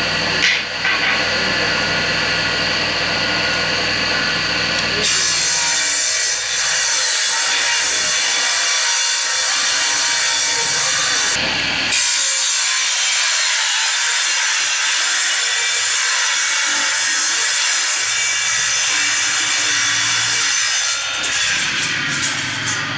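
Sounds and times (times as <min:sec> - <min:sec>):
woodworking machine cutting wood: 0:00.0 - 0:22.9.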